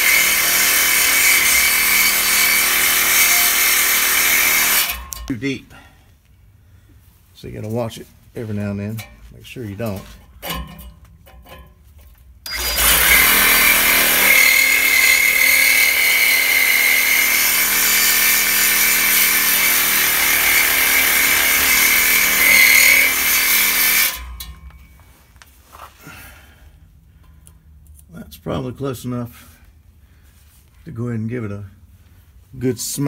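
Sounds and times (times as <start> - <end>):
reciprocating saw cutting metal: 0.0 - 5.3, 12.5 - 24.9.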